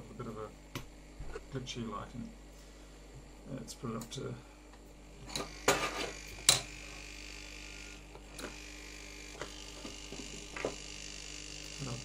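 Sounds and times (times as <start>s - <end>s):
hot air blower humming: 0.0s - 12.0s.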